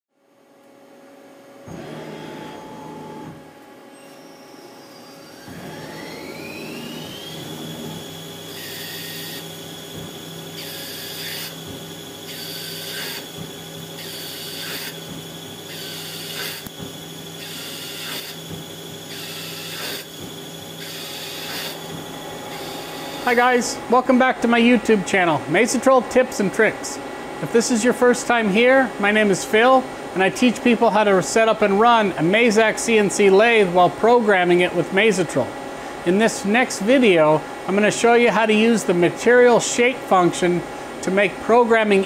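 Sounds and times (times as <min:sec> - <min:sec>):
lathe spindle whine: 0:03.9 - 0:25.0
tool cutting steel: 0:05.3 - 0:23.4.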